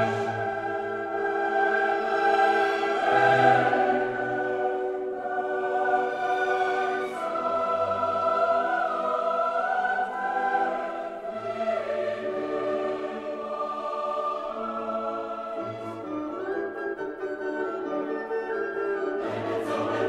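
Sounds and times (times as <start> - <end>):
choir singing held chords: 0.0 - 16.9, 19.1 - 20.0.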